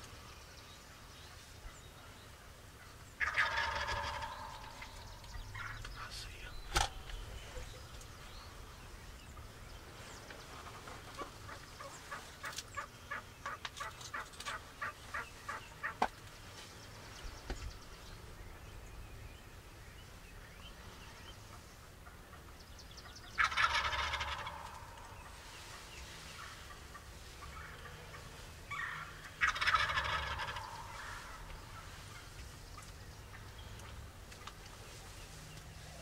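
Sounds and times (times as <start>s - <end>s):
turkey gobbling: 2.8s - 5.8s, 10.8s - 16.1s, 23.3s - 33.5s.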